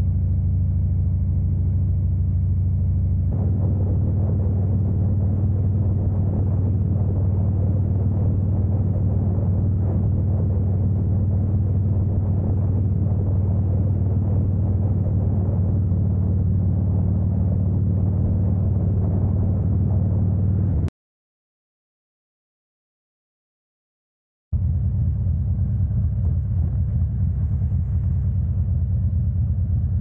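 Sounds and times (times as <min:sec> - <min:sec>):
motorcycle engine cruising: 0:00.0 - 0:20.9
wind and road noise: 0:00.0 - 0:20.9, 0:24.6 - 0:30.0.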